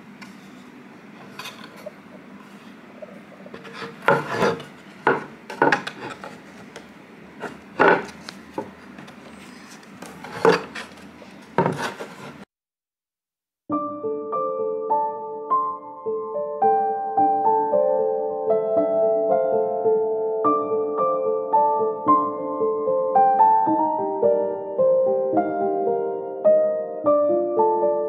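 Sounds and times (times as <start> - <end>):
rubbing scrapes: 3.5 - 6.7, 9.2 - 12.5.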